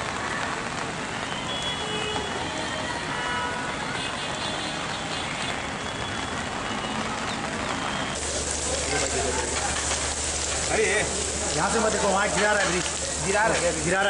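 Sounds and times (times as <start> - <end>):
rain hissing: 0.0 - 14.0
traffic on wet street: 0.0 - 14.0.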